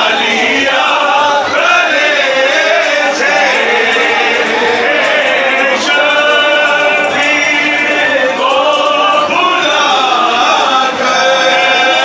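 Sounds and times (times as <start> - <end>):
men singing a chanted lament: 0.0 - 12.0.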